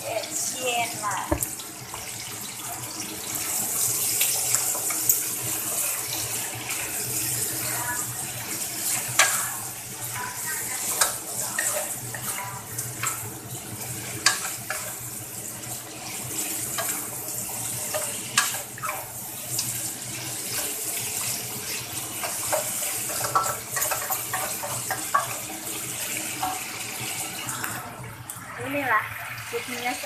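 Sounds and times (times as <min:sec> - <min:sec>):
oil sizzling in a frying pan: 0:00.0 - 0:30.0
spatula knocking against pan: 0:01.3 - 0:01.5.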